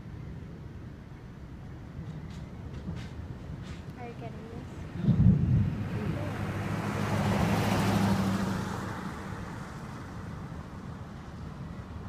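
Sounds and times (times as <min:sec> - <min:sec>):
vehicle driving past: 0:04.6 - 0:11.5.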